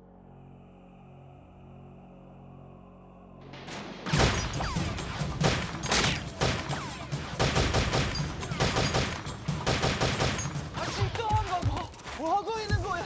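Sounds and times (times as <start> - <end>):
rapid gunfire volleys: 4.0 - 13.0.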